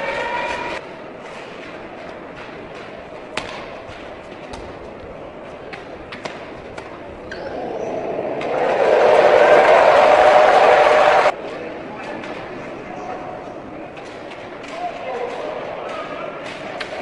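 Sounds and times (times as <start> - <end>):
arena background noise: 0.0 - 17.0
racket hitting shuttlecock: 2.4 - 4.8
crowd cheering: 7.4 - 11.4.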